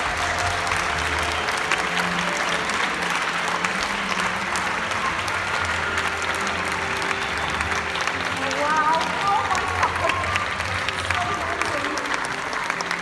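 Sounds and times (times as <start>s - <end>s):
crowd applauding: 0.0s - 13.0s.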